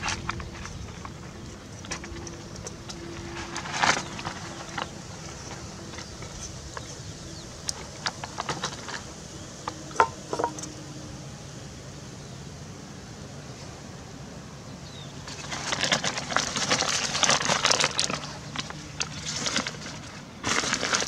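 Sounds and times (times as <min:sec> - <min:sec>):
steady background hiss: 0:00.0 - 0:21.0
utensils clinking on pots: 0:09.9 - 0:10.7.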